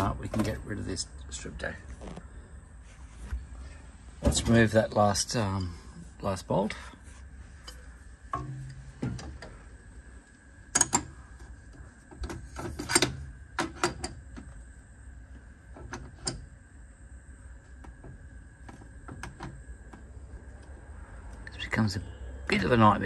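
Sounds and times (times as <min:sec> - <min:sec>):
spanner clicking on metal: 0:10.7 - 0:11.1, 0:12.7 - 0:14.2.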